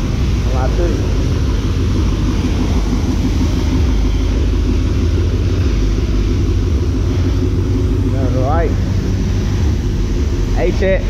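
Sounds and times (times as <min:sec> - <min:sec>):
pressure washer spraying water: 0:00.0 - 0:11.0.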